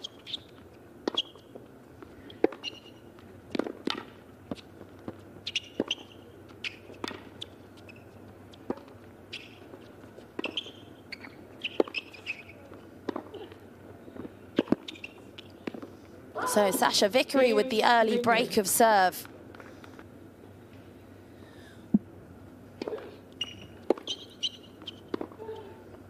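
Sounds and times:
tennis ball bouncing on hard court: 2.4s - 2.8s, 3.5s - 7.5s, 10.4s - 13.3s.

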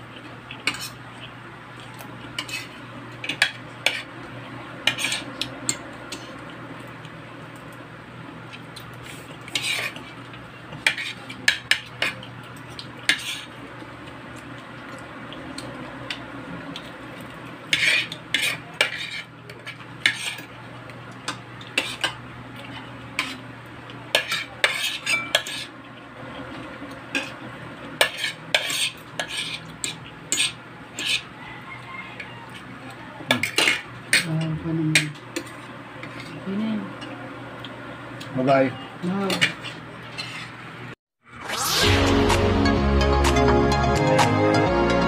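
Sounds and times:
cutlery clinking and scraping on plate: 0.5s - 1.0s, 1.8s - 4.1s, 4.8s - 6.4s, 9.5s - 13.5s, 17.7s - 20.5s, 21.2s - 23.4s, 24.1s - 25.7s, 28.0s - 31.3s, 33.3s - 36.4s, 39.2s - 40.6s.

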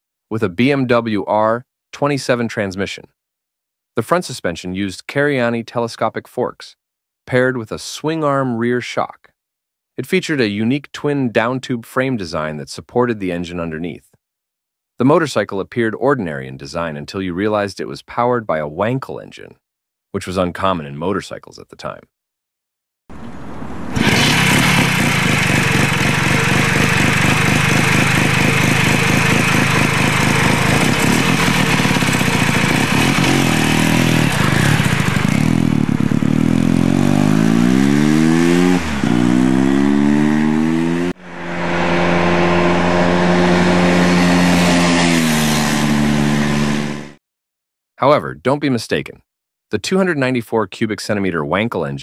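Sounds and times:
motorcycle engine revving: 23.1s - 47.2s.

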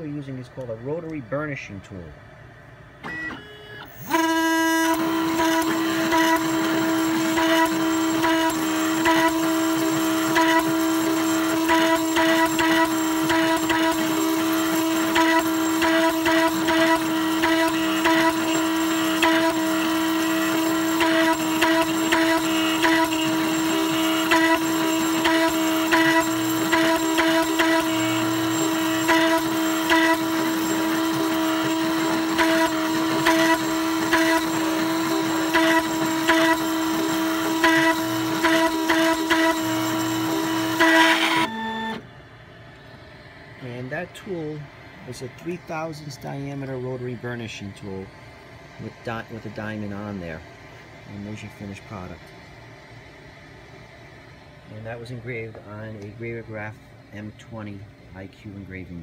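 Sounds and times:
engraving machine motor whine: 3.0s - 42.1s.

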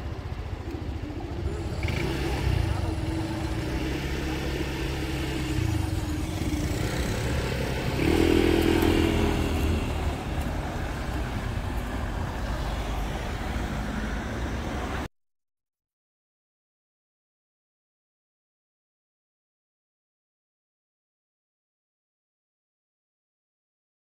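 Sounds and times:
car engines idling and pulling away: 0.0s - 15.1s
motor scooter accelerating: 0.0s - 15.1s.

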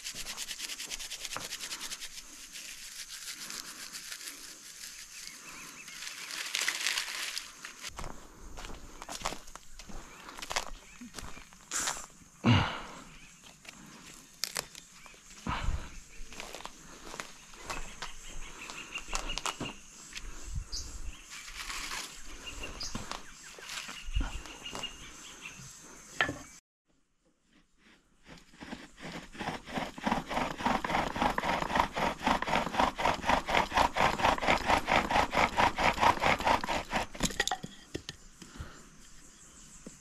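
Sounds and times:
bow drill spindle grinding: 28.4s - 37.2s.

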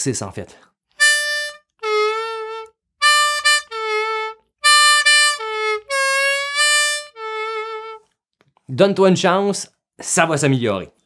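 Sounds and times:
harmonica playing slow riff: 1.0s - 8.0s.

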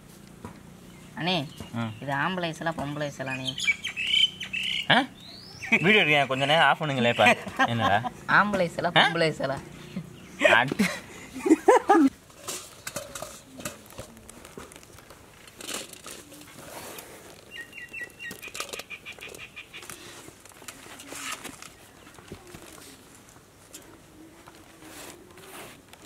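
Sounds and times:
people laughing: 7.0s - 8.3s, 9.9s - 12.1s
insects rustling on a bamboo tray: 12.1s - 26.0s.

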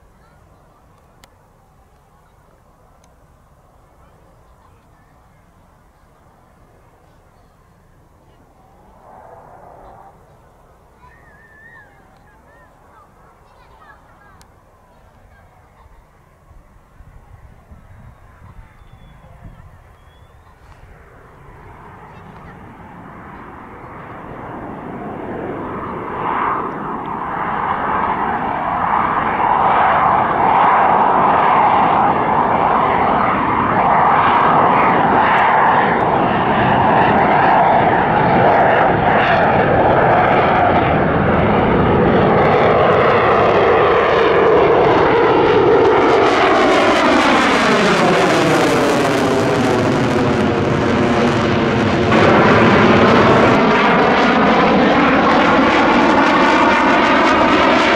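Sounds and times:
jet engine roar: 0.0s - 57.9s
jet whoosh passing by: 8.6s - 11.9s, 20.4s - 57.9s.

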